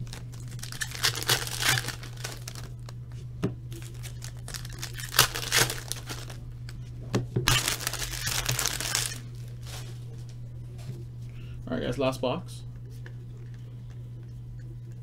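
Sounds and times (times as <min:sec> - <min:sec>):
foil wrapper crinkling and tearing: 0:00.0 - 0:03.0, 0:03.7 - 0:06.4, 0:07.5 - 0:10.1.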